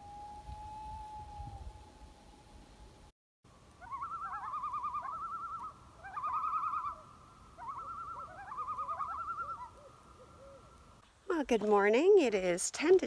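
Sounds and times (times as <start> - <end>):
loons giving tremolo calls: 3.8 - 10.8.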